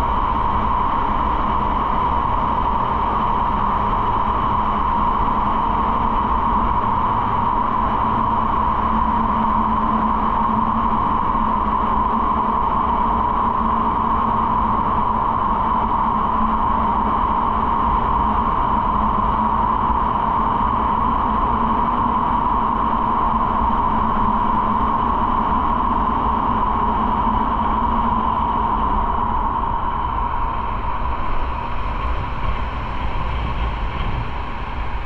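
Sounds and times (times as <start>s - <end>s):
wind and road rush: 31.4s - 35.0s.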